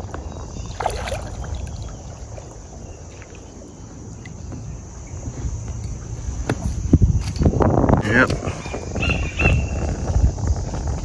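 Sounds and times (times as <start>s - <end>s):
paddle splashing in water: 0.0s - 5.6s
water dripping: 0.7s - 4.6s.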